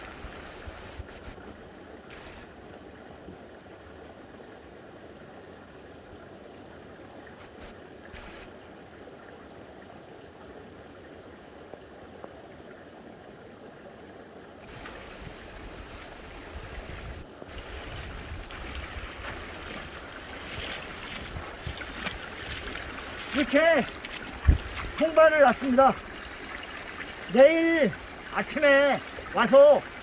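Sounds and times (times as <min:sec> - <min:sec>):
stream running over rocks: 0:00.0 - 0:30.0
wind rumble on microphone: 0:14.6 - 0:25.2
water splashing around wading legs: 0:14.7 - 0:30.0.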